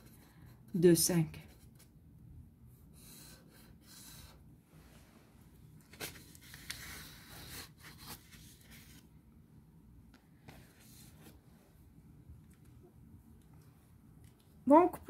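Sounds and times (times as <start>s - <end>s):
marker scratching on paper: 2.9s - 4.4s, 6.2s - 9.0s.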